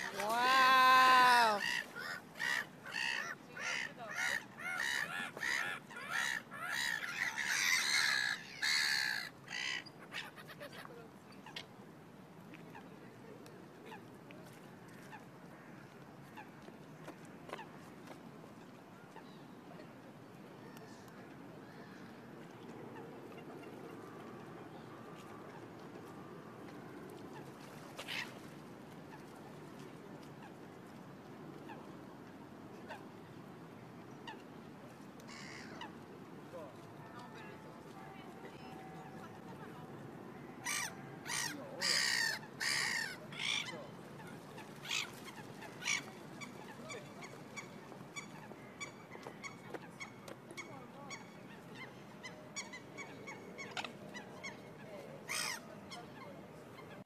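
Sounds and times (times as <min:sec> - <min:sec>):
water birds calling: 0:00.0 - 0:11.8, 0:20.6 - 0:57.0
low background noise: 0:00.0 - 0:57.0
waterfowl calling: 0:40.5 - 0:43.8.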